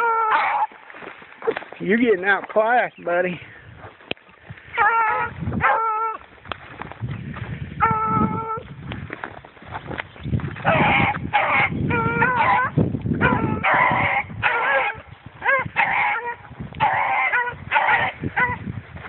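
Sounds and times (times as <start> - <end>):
hounds baying: 0.0 - 1.6, 4.6 - 6.3, 10.6 - 18.6.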